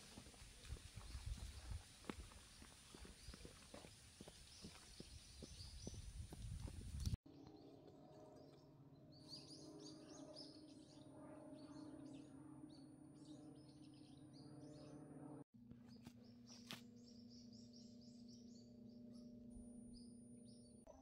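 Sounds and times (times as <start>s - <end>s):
small birds chirping: 0.6s - 7.2s, 15.8s - 20.8s
low steady hum: 7.7s - 21.0s.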